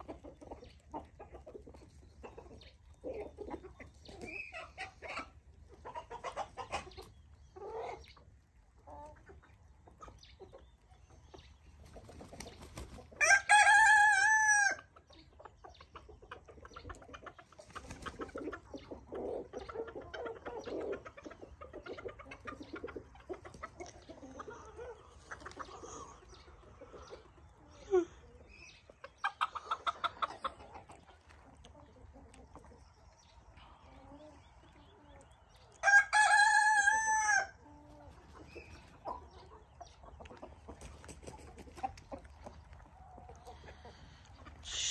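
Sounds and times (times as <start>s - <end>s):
chickens clucking: 0.0s - 44.9s
rooster crowing: 13.2s - 14.8s, 35.8s - 37.5s.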